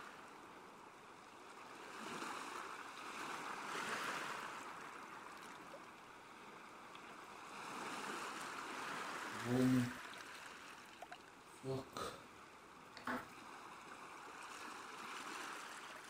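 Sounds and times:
faint sea waves washing: 0.0 - 16.0.

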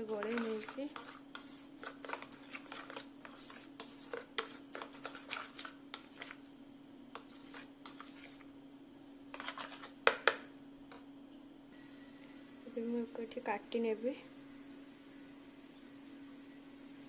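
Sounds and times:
spoon scraping plastic bowl: 0.0 - 6.5, 7.1 - 8.5, 9.3 - 10.4
steady low hum: 0.0 - 17.0.

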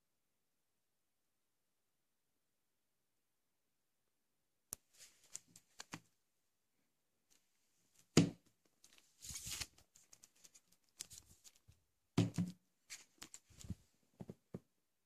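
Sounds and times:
plastic wrap rustling: 8.9 - 11.7
book knocking on table: 12.2 - 12.6.

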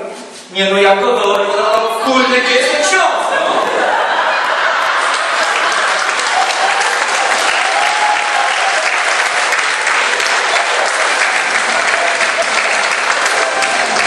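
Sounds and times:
crowd applause: 3.4 - 14.0.

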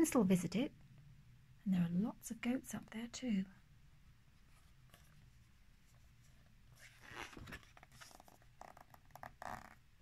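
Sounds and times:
paper page turning: 6.8 - 8.5.

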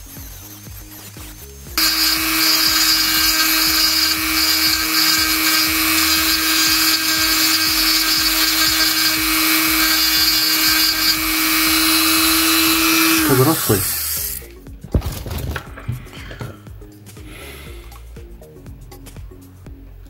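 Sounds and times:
mini drill running: 1.8 - 14.5.

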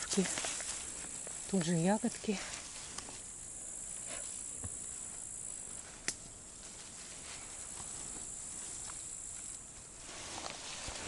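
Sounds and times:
grasshoppers chirring: 0.0 - 11.0.

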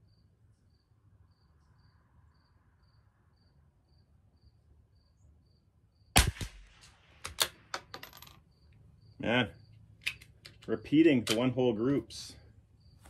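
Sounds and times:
crickets chirping: 0.0 - 6.1, 8.4 - 11.0, 11.8 - 13.0
rifle shot: 6.1 - 7.7.

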